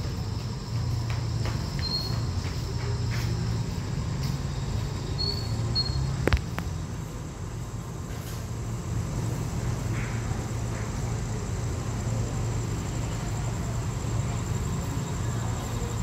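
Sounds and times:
train idling hum: 0:00.0 - 0:16.0
faint high chirps: 0:05.0 - 0:06.2.

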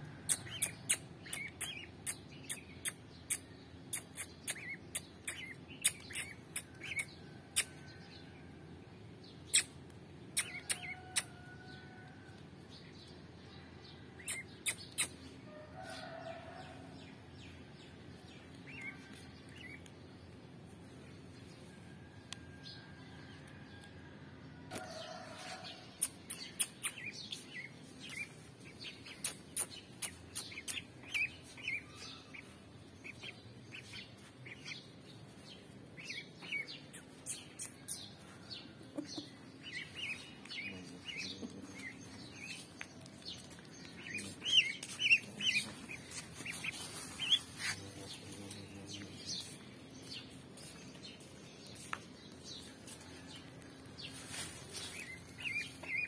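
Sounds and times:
duckling peeping: 0:00.3 - 0:07.7, 0:18.6 - 0:19.8, 0:26.0 - 0:35.1, 0:38.9 - 0:42.7, 0:43.4 - 0:49.6, 0:54.4 - 0:56.0.

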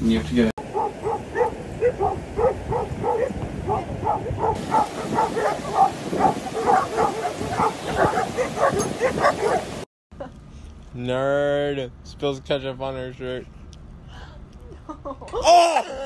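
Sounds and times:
dog barking rapidly: 0:00.6 - 0:09.8.

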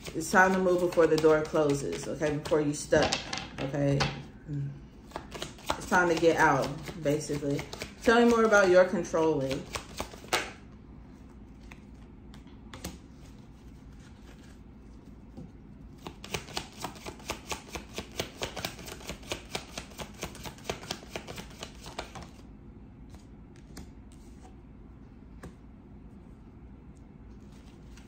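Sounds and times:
cards shuffled by hand: 0:05.0 - 0:08.7, 0:09.4 - 0:10.6, 0:15.9 - 0:22.4, 0:27.3 - 0:28.0.

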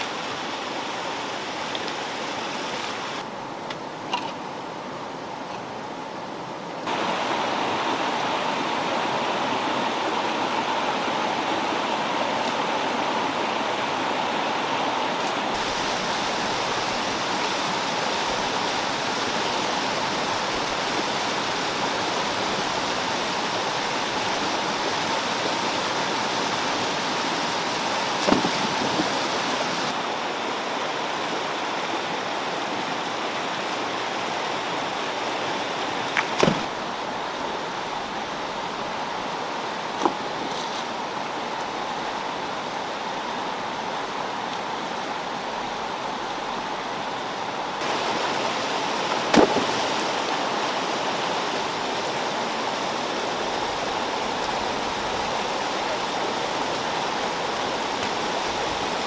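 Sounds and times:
stream rushing over rocks: 0:00.0 - 0:59.0
sharp knocks: 0:36.4 - 0:36.7, 0:49.3 - 0:49.7.

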